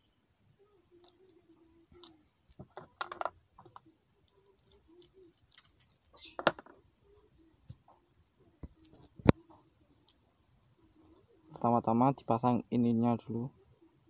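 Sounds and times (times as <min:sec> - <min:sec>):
plastic parts clicking and rattling: 0:01.0 - 0:06.8.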